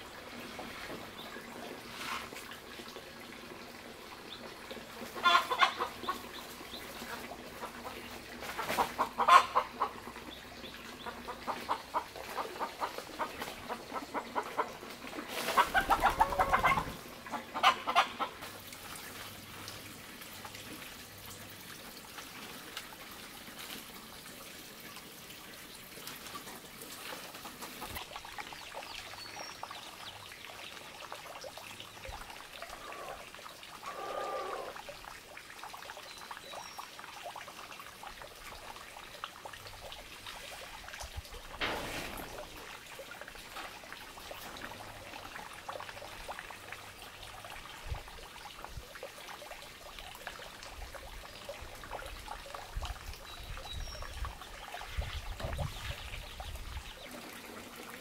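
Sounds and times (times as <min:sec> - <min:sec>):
chickens clucking: 0:04.9 - 0:18.6.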